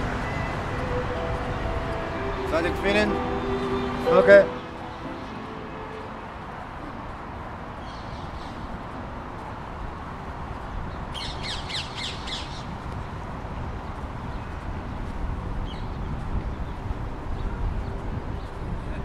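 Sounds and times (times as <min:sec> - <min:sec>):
bird calling sharp high notes: 0:00.0 - 0:06.3
street hum: 0:00.0 - 0:19.0.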